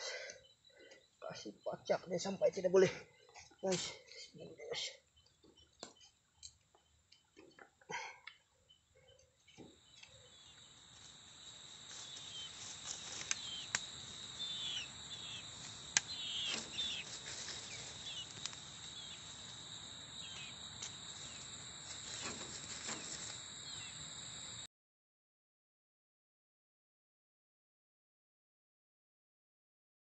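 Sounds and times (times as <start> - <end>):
insects droning: 0.0 - 5.3, 8.6 - 24.7
insect chirps: 0.0 - 7.4, 8.4 - 24.7.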